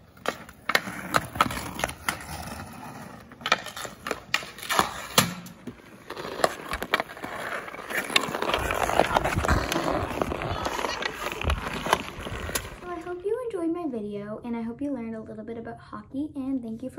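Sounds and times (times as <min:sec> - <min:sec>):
skates scraping on ice: 0:00.0 - 0:13.4
hockey stick clacking on puck: 0:03.4 - 0:09.9.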